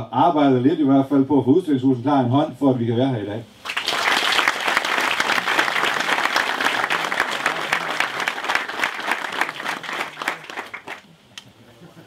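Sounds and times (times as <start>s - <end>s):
audience applauding: 3.6s - 11.1s.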